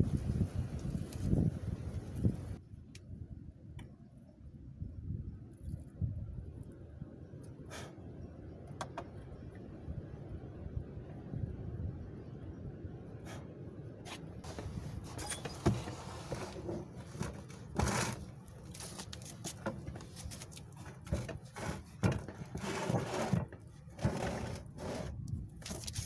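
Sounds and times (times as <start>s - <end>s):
wooden bellows knocks and scrapes: 14.1s - 25.8s.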